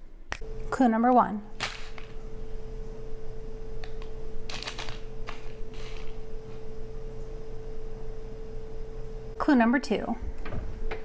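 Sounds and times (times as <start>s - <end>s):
steady hum: 0.0s - 11.0s
foil packets tapping and crinkling: 1.6s - 2.2s, 3.8s - 6.2s.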